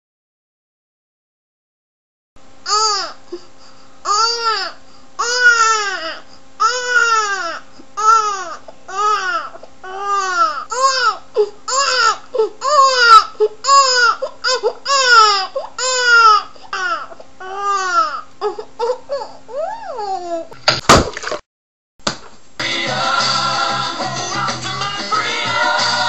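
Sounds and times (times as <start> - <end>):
faint steady hum: 2.4 - 20.6
baby crying: 2.7 - 3.2, 4.1 - 20.6.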